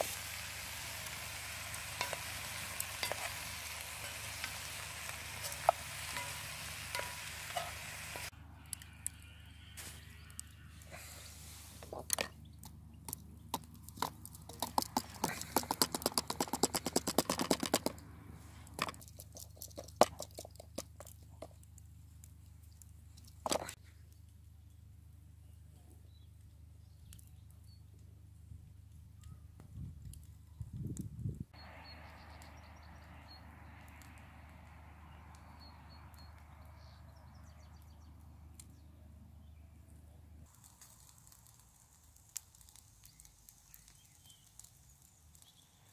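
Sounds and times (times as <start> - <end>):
outdoor background hiss: 0.0 - 13.5, 31.4 - 45.9
small birds chirping: 12.2 - 17.0, 23.8 - 28.2, 31.6 - 40.6, 42.3 - 45.9
fast chopping taps: 13.5 - 18.0.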